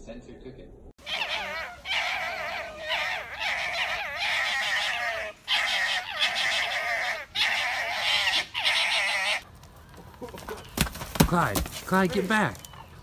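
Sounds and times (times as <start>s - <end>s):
foxes gekkering: 1.0s - 9.4s.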